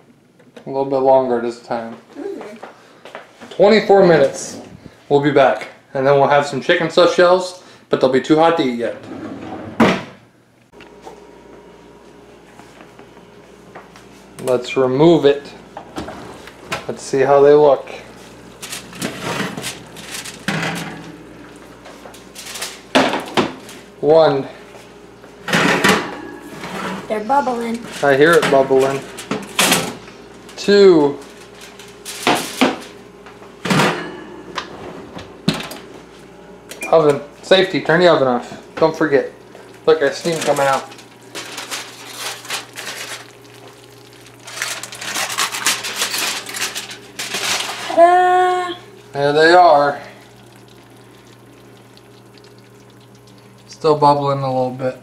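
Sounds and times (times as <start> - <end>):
metal pan scraping on oven rack: 9.0 - 9.9, 18.6 - 21.2, 25.6 - 27.2
aluminium foil crinkling: 18.2 - 20.6, 21.4 - 23.0, 27.7 - 30.6, 31.2 - 33.0, 39.5 - 49.1, 50.0 - 53.7.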